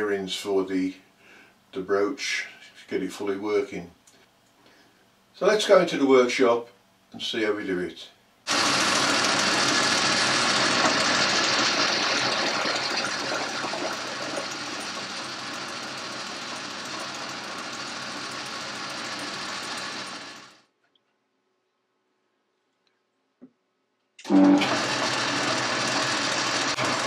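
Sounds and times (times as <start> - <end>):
metal lathe cutting: 8.5 - 20.6, 24.3 - 27.0.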